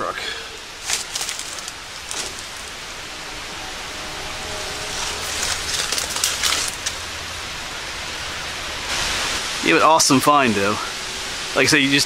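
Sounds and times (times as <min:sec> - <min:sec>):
steady hiss: 0:00.0 - 0:12.0
footsteps crunching dry leaves: 0:00.7 - 0:03.0, 0:04.5 - 0:07.3.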